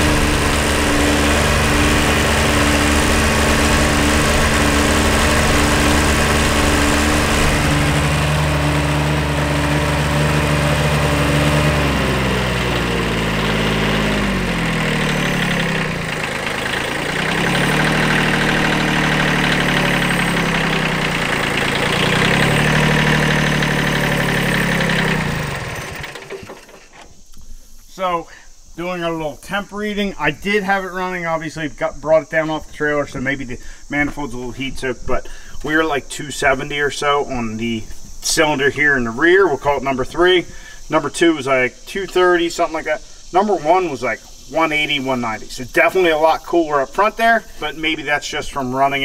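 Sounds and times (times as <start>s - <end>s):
tractor diesel engine revving: 0.0s - 27.1s.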